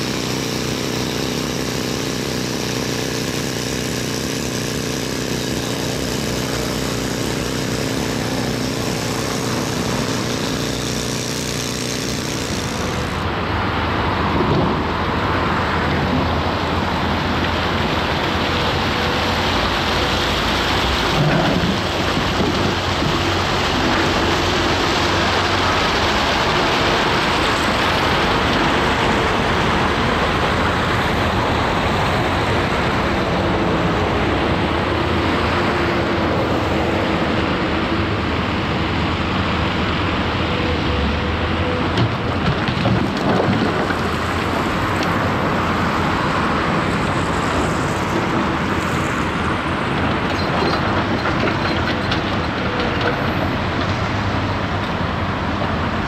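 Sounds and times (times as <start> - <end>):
excavator diesel engine running: 0.0 - 56.0
excavator knocks: 41.9 - 44.6.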